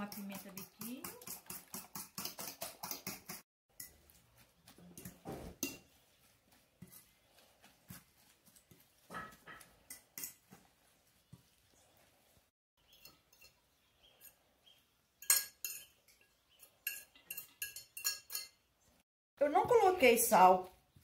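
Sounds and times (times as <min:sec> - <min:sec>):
fork scraping bowl: 0:00.0 - 0:12.0, 0:15.2 - 0:18.5
fork clinking in metal bowl: 0:12.9 - 0:13.6, 0:15.2 - 0:18.6.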